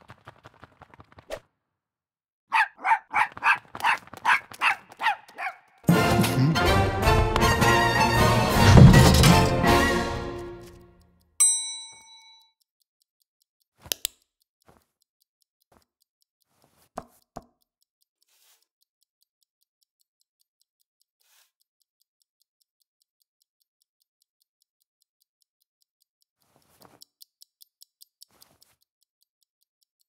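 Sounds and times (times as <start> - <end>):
background music: 5.9 - 11.0
bell-like ding: 11.4 - 12.5.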